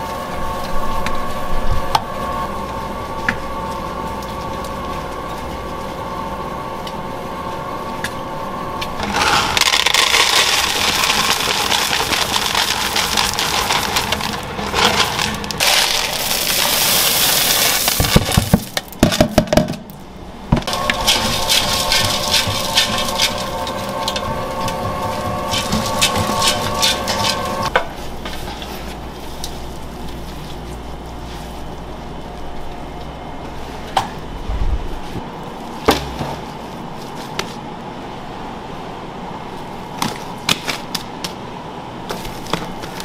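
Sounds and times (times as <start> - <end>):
dough mixer humming: 0.0 - 19.2, 20.1 - 35.5
chocolate chips rattling into tub: 9.0 - 19.2, 20.7 - 27.7.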